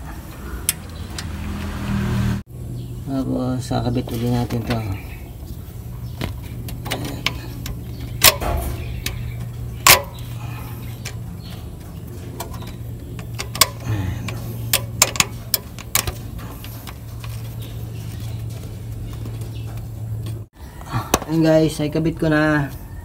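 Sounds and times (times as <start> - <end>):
steady low hum: 0.0 - 20.8
metal fitting clicks and taps: 9.8 - 10.2, 12.4 - 16.2.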